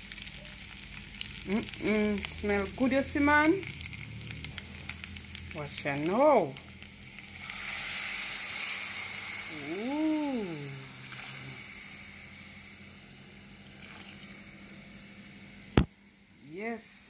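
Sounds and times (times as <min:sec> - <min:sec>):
liquid sizzling in a hot pot: 0:00.0 - 0:17.0
person exclaiming: 0:09.5 - 0:11.0.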